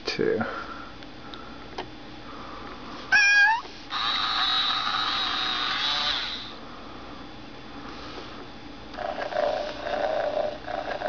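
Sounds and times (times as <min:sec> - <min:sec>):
toy kitten electronic meow: 0:03.1 - 0:06.5
toy purring: 0:03.1 - 0:06.6, 0:09.0 - 0:11.0.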